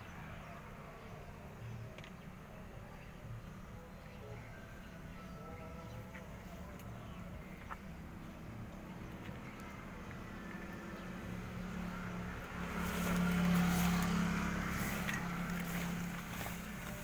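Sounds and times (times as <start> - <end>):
vehicle passing by: 4.6 - 17.0.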